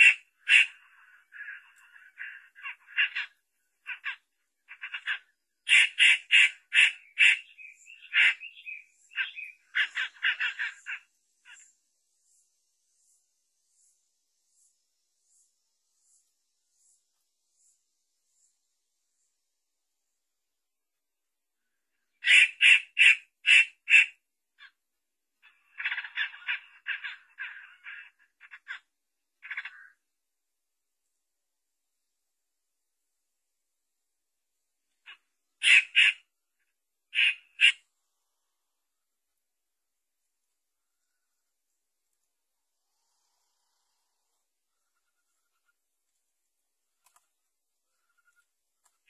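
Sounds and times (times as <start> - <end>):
bird calling with harsh rasping notes: 0.0 - 18.5, 21.6 - 24.8, 25.4 - 30.0, 34.9 - 38.9.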